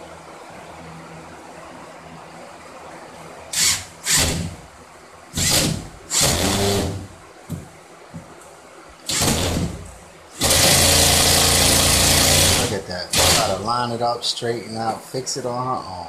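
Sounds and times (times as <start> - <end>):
power drill driving screws: 3.5 - 4.6, 5.4 - 7.0, 9.1 - 9.8, 10.4 - 13.6.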